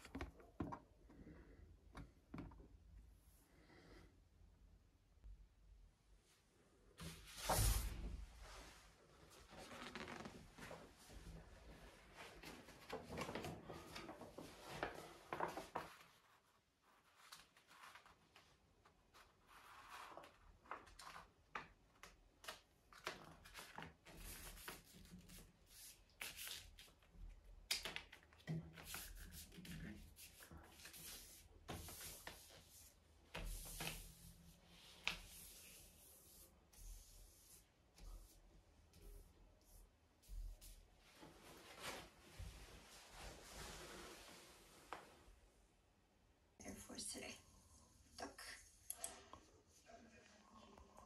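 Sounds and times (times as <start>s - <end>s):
paper rustling and crinkling: 12.0s - 32.7s.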